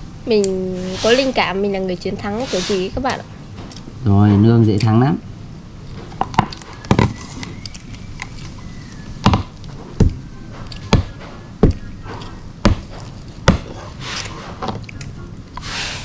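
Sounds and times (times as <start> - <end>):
sharp knocks: 9.2 - 14.8.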